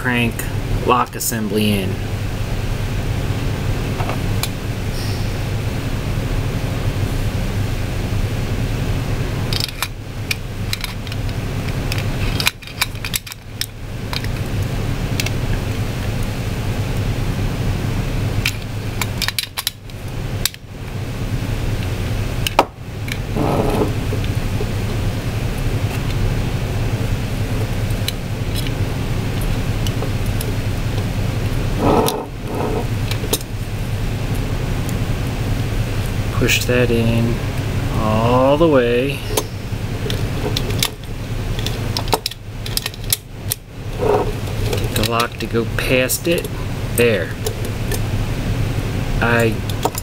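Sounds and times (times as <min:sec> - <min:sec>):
low mechanical hum: 0:00.0 - 0:50.0
metal parts clicking: 0:09.5 - 0:14.4, 0:40.1 - 0:45.4.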